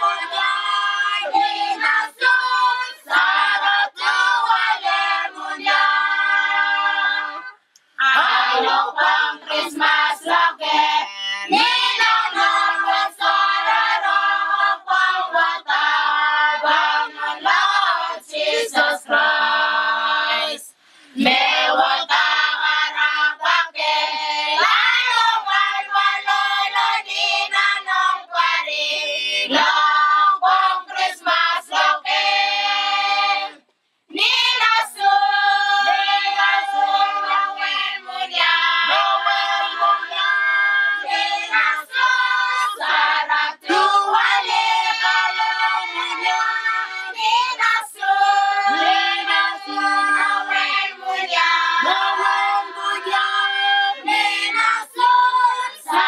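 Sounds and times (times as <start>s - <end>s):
children and adults singing carol: 0.0s - 56.0s.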